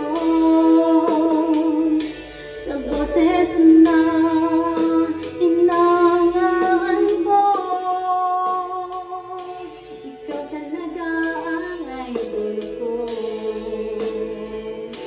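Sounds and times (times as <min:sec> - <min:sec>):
backing music: 0:00.0 - 0:15.0
woman singing into microphone: 0:00.0 - 0:15.0.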